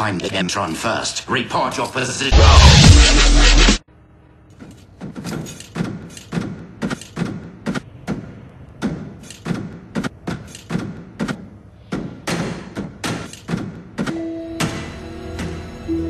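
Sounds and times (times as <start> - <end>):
heavy robot footsteps: 4.9 - 14.1.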